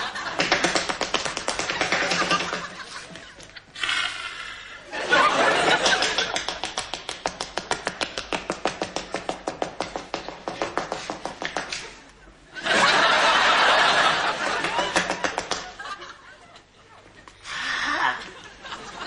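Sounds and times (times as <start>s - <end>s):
audience laughter: 0.0s - 0.7s, 1.3s - 3.8s, 4.8s - 6.6s, 11.7s - 19.0s
audience clapping in rhythm: 0.3s - 2.7s, 5.6s - 11.7s, 13.8s - 15.8s.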